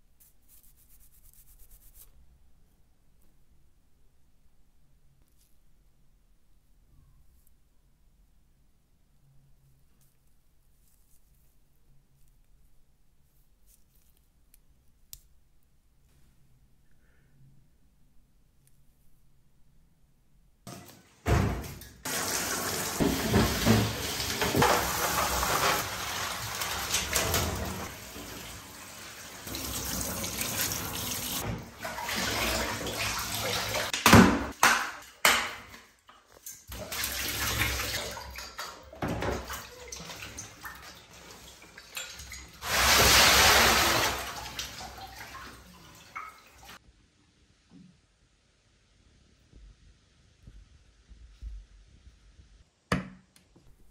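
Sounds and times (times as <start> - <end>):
running water splashing: 22.0 - 35.2, 36.6 - 46.8.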